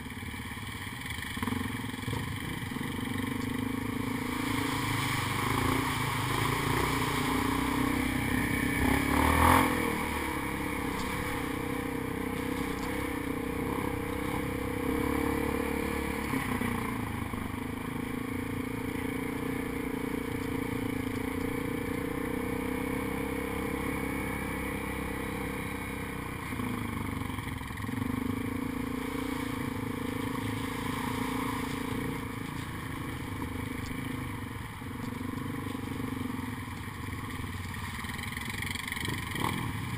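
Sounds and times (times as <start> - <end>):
atv engine running: 0.0 - 39.9
rattle and scrape over dirt: 1.0 - 17.1, 26.5 - 39.9.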